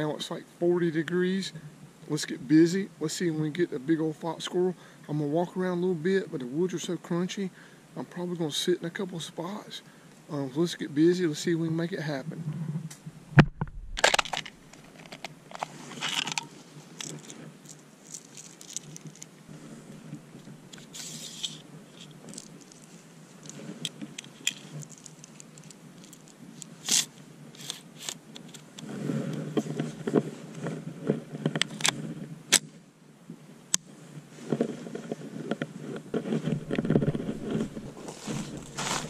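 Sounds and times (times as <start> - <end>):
clicks of metal rifle parts: 13.4 - 19.3
clothing rustling: 13.5 - 20.3, 20.9 - 26.3, 36.2 - 39.0
rustling of dry pine needles: 13.7 - 30.8, 34.1 - 39.0.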